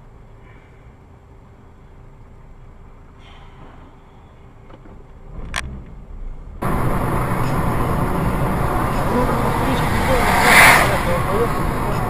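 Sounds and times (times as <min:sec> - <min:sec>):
faint vehicle rumble: 0:00.0 - 0:12.0
rushing road noise: 0:05.2 - 0:12.0.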